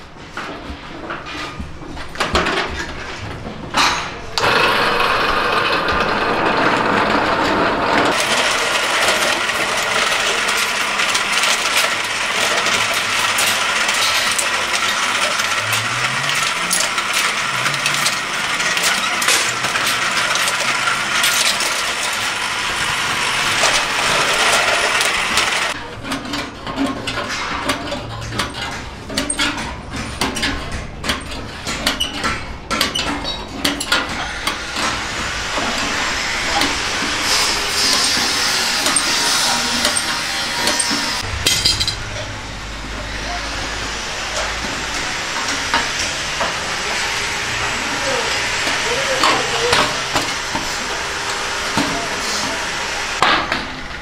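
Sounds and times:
metal sheet grinding in rollers: 2.2s - 54.0s
metal knocks and clanks: 37.8s - 43.1s.

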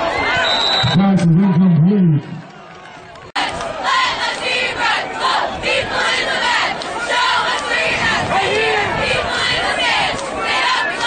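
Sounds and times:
football crowd shouting and chanting: 0.0s - 11.0s.

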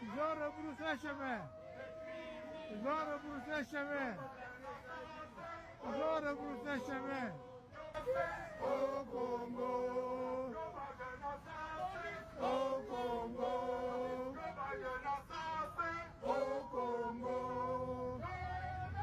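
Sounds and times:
protesters singing a chant: 0.0s - 19.0s.

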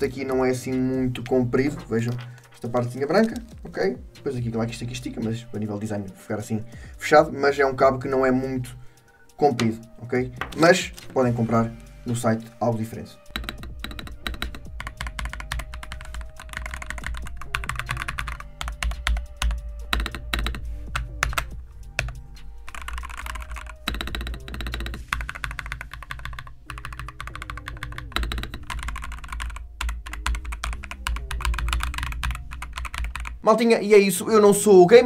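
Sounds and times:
background music with bass line: 0.0s - 33.5s
fast typing on mechanical keyboard: 13.3s - 33.4s.

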